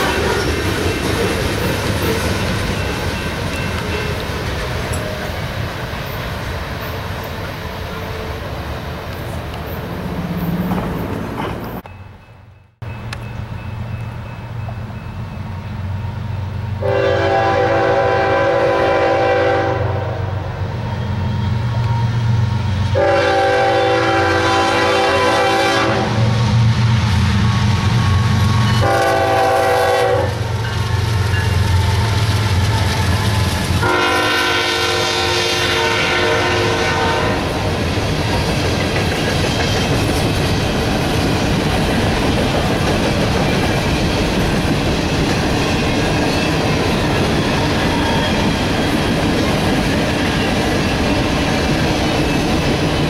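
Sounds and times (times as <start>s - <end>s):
locomotive air horn blasts: 16.8s - 20.4s, 22.9s - 26.4s, 28.8s - 30.6s, 33.8s - 37.6s.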